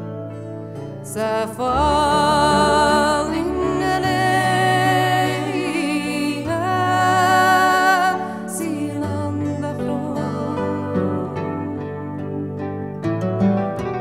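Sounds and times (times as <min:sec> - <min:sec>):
person singing long held notes: 0:01.2 - 0:12.4.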